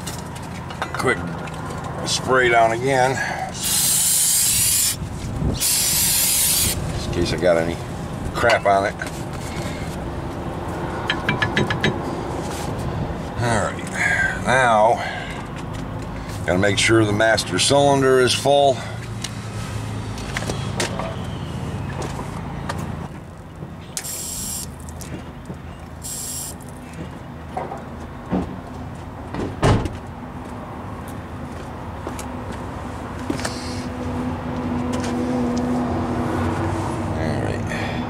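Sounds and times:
outdoor background hum: 0.0 - 38.0
vehicle passing: 1.2 - 23.1, 30.2 - 38.0
short bursts of hiss: 3.6 - 5.0, 5.6 - 6.8, 26.0 - 26.6.

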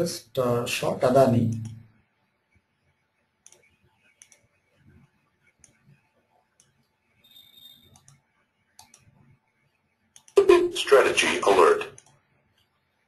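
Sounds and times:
faint computer mouse clicks: 3.4 - 4.6, 5.6 - 6.0, 6.6 - 6.9, 7.9 - 8.2, 8.8 - 9.2, 12.0 - 12.7.

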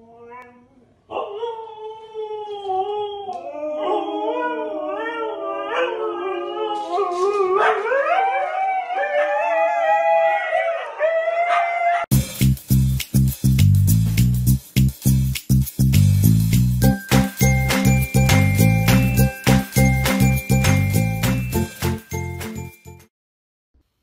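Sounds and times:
huskies howling: 2.9 - 12.1.

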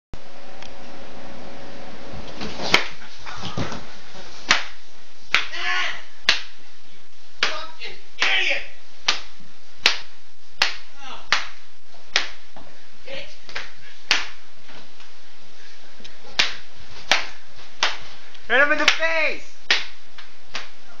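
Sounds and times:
sharp smacks of blows: 2.7 - 3.0, 4.5 - 5.5, 6.3 - 6.6, 9.1 - 12.4, 13.5 - 14.4, 16.4 - 18.0, 19.7 - 20.7.

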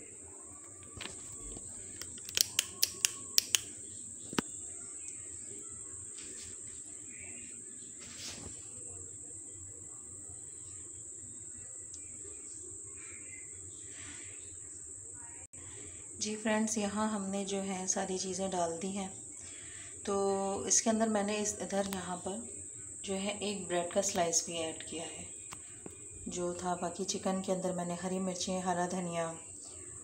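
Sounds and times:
sharp clicks: 2.0 - 3.7.

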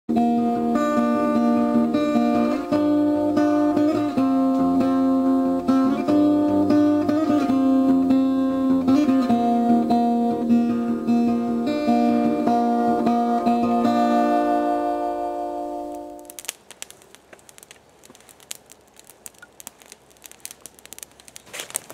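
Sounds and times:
acoustic guitar music: 0.2 - 16.4.

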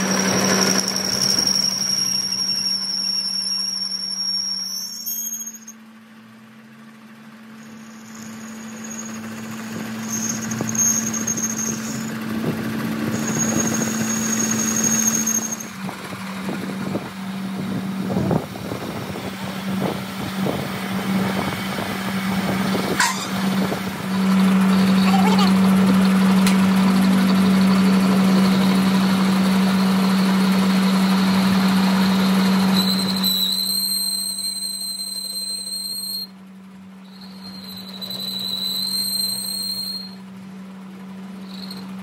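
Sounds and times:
high squeal: 0.0 - 5.9, 7.4 - 36.4, 37.0 - 42.0
machine humming: 7.4 - 32.8.

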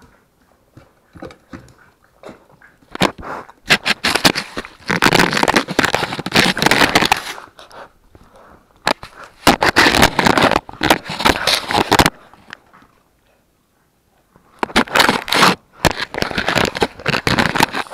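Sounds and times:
puppy teeth crunching on plastic: 1.1 - 7.9, 8.8 - 13.0, 14.6 - 17.9.

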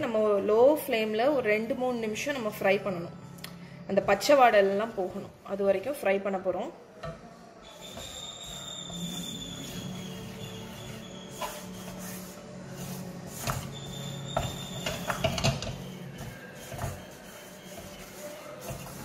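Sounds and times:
spatula scraping and stirring flour: 7.1 - 19.0.

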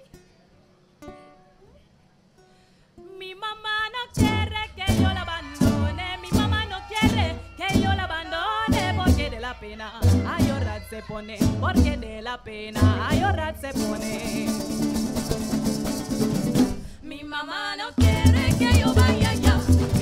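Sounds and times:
strummed strings rhythm: 4.2 - 10.8, 12.8 - 17.0, 18.0 - 20.0.

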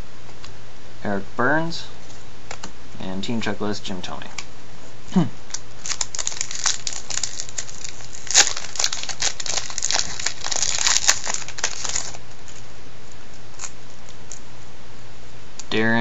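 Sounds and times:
plastic wrapper crinkling: 5.5 - 12.6.

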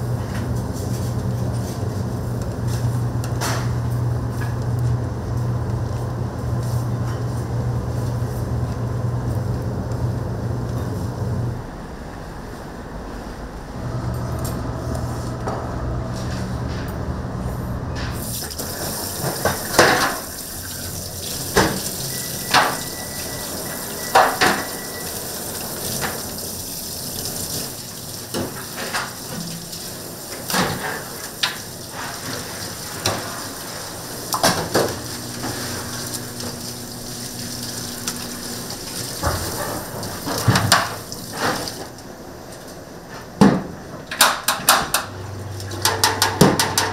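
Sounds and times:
low machine hum: 0.0 - 46.9
water running: 18.2 - 42.0
dishes and utensils clattering: 21.5 - 25.2.

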